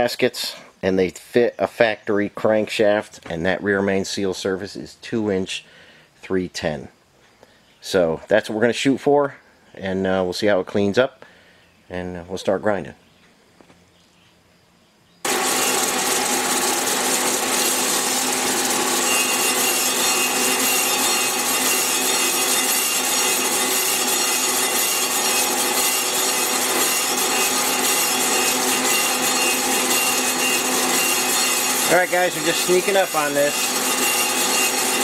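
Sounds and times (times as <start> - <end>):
grinding wheel on metal: 15.3 - 35.0.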